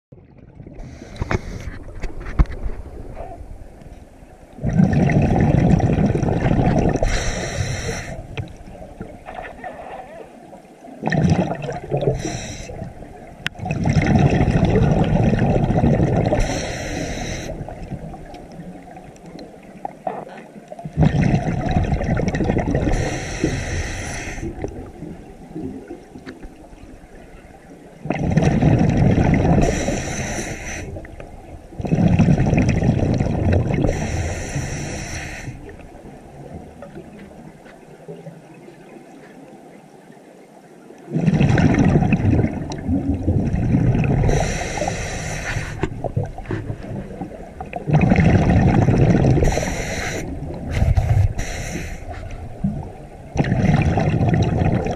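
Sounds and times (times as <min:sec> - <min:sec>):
exhaled air bubbling: 0:00.1 - 0:39.0, 0:41.1 - 0:54.9
regulator hiss: 0:07.0 - 0:08.3, 0:12.2 - 0:12.9, 0:16.4 - 0:17.6, 0:22.9 - 0:24.5, 0:29.6 - 0:31.0, 0:33.9 - 0:35.7, 0:44.3 - 0:45.8, 0:49.4 - 0:52.3.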